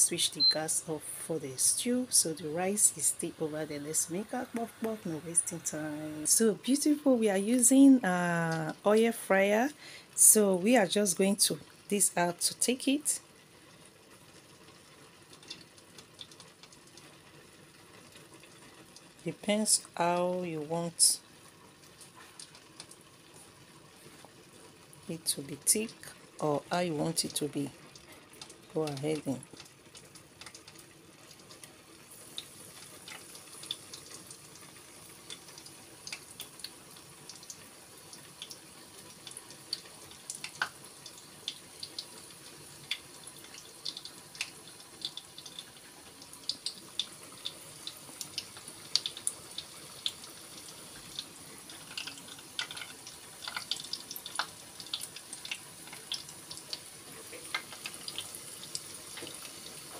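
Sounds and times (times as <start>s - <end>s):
oil sizzling in deep fryer: 0.0s - 59.9s
crackling pops of frying batter: 14.6s - 19.2s, 28.3s - 59.9s.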